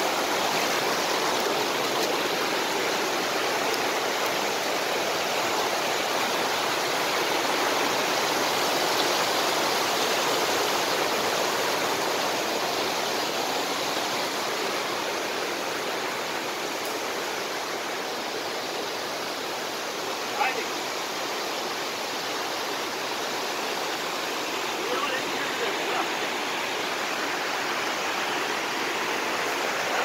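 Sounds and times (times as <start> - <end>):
stream rushing over stones: 0.0 - 30.0.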